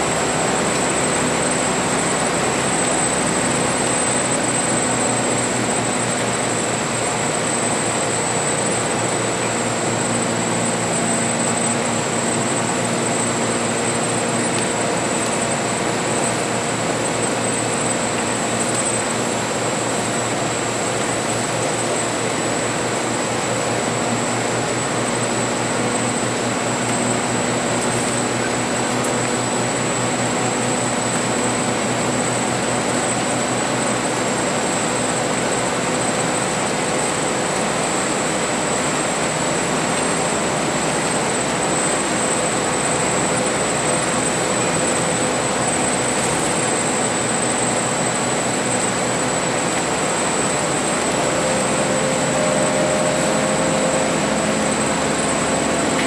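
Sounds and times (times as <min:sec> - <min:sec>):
bus engine running: 0:00.0 - 0:56.0
high-pitched whine: 0:00.0 - 0:56.0.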